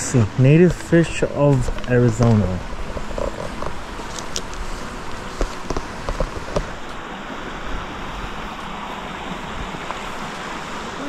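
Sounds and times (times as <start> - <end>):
creek water rushing: 0.0 - 11.0.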